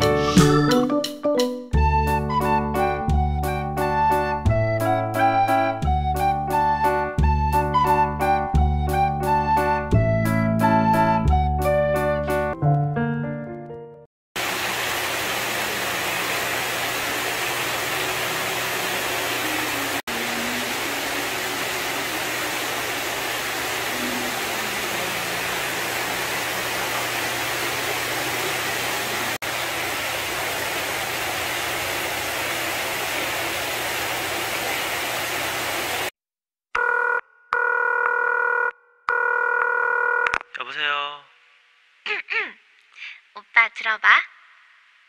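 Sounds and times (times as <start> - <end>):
water jets spraying: 14.4 - 36.1.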